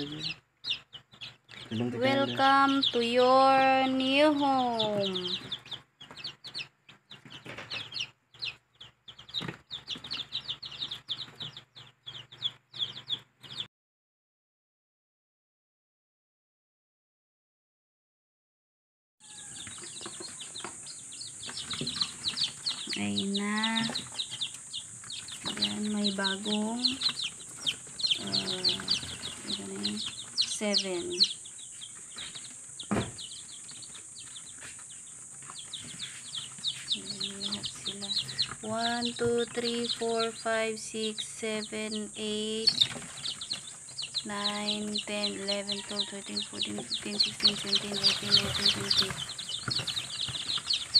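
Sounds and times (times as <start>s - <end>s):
chicks peeping: 0.0s - 13.7s, 19.2s - 50.9s
thump: 32.9s - 33.2s.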